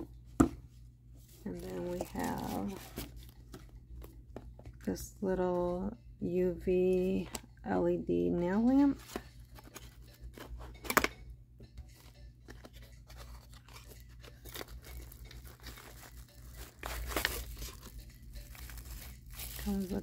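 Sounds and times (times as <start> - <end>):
packaging torn and crinkled: 13.1 - 20.0.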